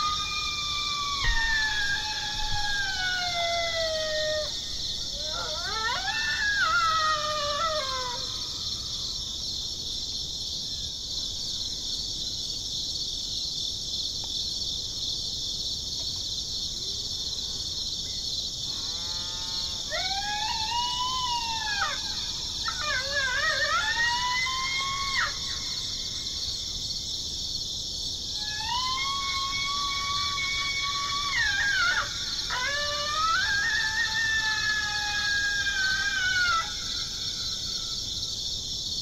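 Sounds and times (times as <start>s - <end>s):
electronic coyote yips and howls: 0.0s - 8.8s, 19.8s - 26.2s, 28.4s - 38.0s
crickets chirping: 0.0s - 39.0s.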